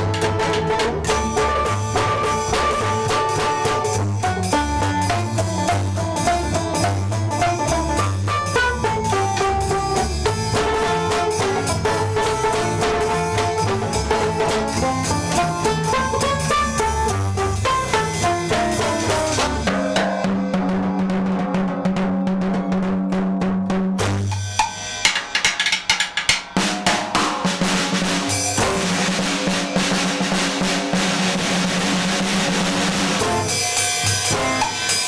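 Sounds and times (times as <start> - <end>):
clarinet lead: 0.0 - 20.0, 33.2 - 33.7, 34.3 - 34.9
old-time jazz band playing: 0.0 - 24.5, 26.2 - 35.0
drum beats: 0.0 - 35.0.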